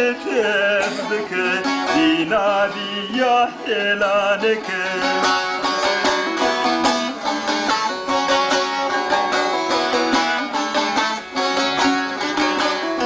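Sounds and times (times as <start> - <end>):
long-necked lute strummed: 0.0 - 13.0.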